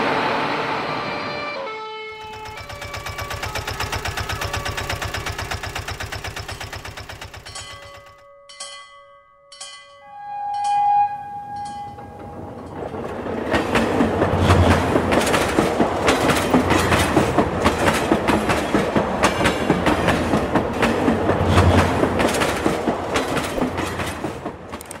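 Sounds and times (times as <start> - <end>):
toy train horn: 0.1 - 3.6, 10.0 - 12.5
toy crossing signal ringing: 2.2 - 5.0, 6.5 - 10.9
toy train clickety-clack rattle: 2.2 - 8.7, 14.6 - 25.0.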